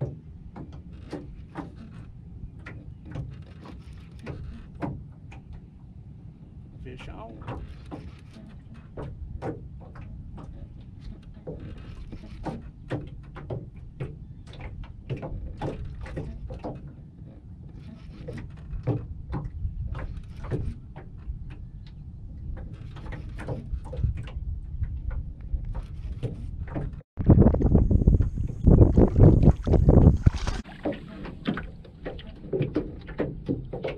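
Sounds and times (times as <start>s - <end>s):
wind on microphone: 13.6s - 33.9s.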